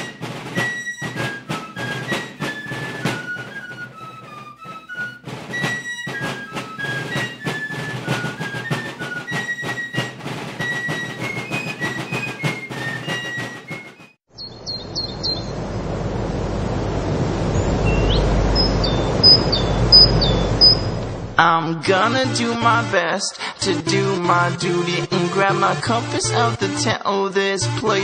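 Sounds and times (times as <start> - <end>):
instrumental music with percussion: 0.0 - 14.1
rushing noise with deep rumble: 14.6 - 21.4
short high chirps: 18.6 - 21.0.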